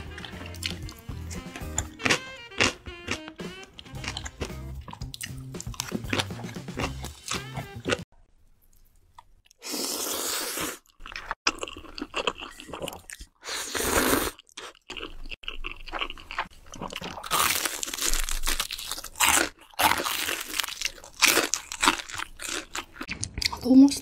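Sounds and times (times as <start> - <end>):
wet chewing: 0.0 - 8.0, 10.6 - 24.0
crunchy bites: 0.2 - 8.0, 14.7 - 23.6
slurping noodles: 9.5 - 11.4, 12.7 - 14.6.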